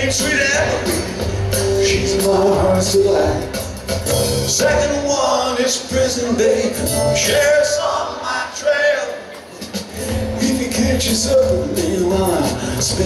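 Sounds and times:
deep bass: 0.0 - 4.9
acoustic guitar: 0.0 - 13.0
drums and cymbals: 0.0 - 13.0.

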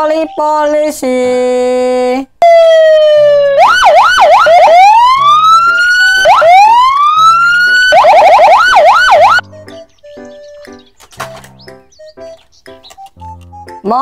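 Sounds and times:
police siren: 2.4 - 9.4.

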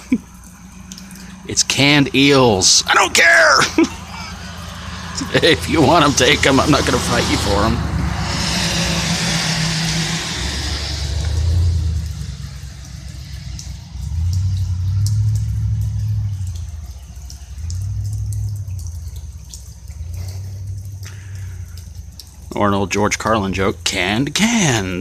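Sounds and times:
slow low rumbles: 3.7 - 22.6
car tyres hissing on wet road: 3.8 - 22.2.

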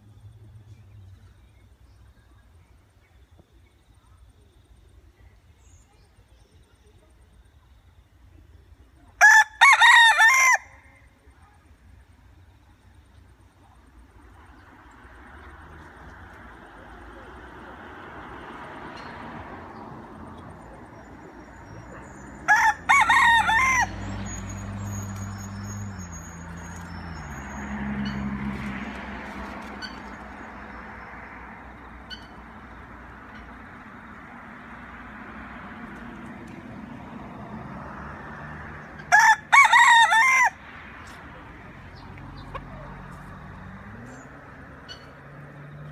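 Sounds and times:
rooster crowing: 9.2 - 10.8, 22.4 - 24.4, 39.0 - 40.6.

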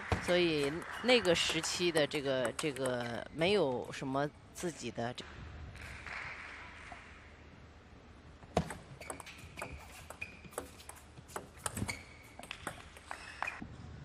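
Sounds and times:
table tennis ball clicking: 1.5 - 3.2, 9.0 - 13.2
shoe soles squeaking: 9.0 - 13.6.

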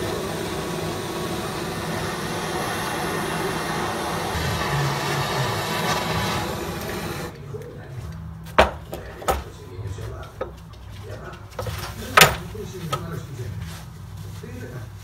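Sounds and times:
gas torch hissing: 0.0 - 7.4.

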